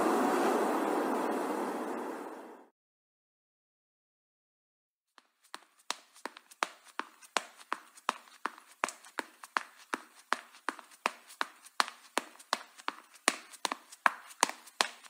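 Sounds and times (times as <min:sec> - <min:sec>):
quick footsteps on hard surface: 0:05.2 - 0:15.0.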